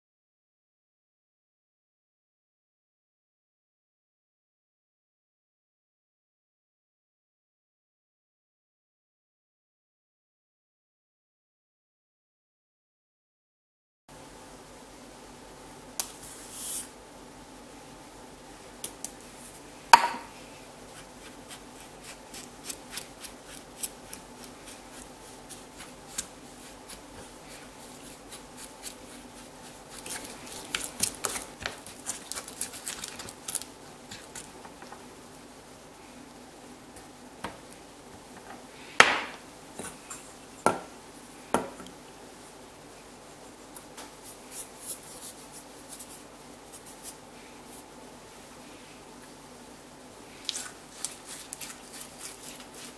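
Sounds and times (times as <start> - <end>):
faint steady hum: 14.1 - 52.9.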